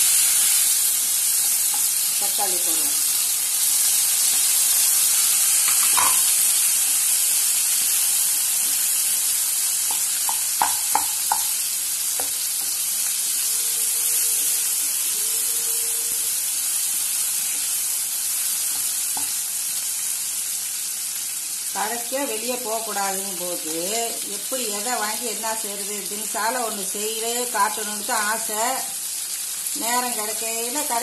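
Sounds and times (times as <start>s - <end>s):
oil sizzling in a pan: 0.0s - 31.0s
spatula knocking against pan: 5.7s - 6.3s, 9.9s - 11.6s.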